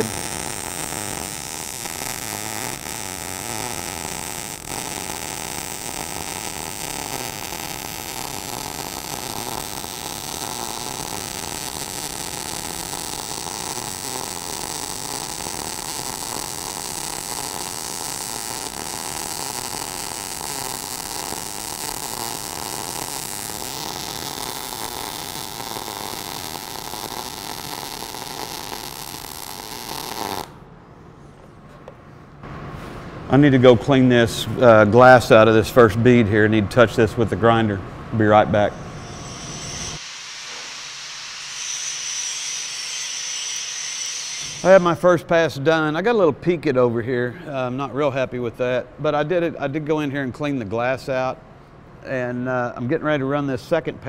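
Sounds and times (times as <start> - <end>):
welding arc crackling: 0.0 - 30.6, 39.0 - 44.9.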